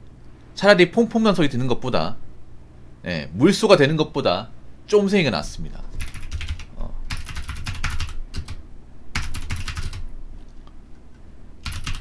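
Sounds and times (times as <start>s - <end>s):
computer keyboard typing: 6.0s - 10.0s, 11.6s - 12.0s.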